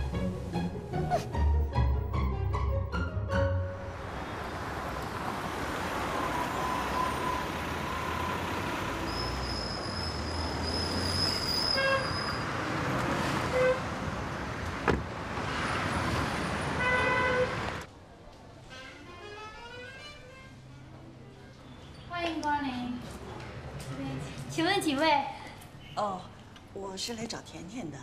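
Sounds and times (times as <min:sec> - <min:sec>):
cars driving past: 0:03.7 - 0:17.9
car horn toots: 0:16.8 - 0:17.6.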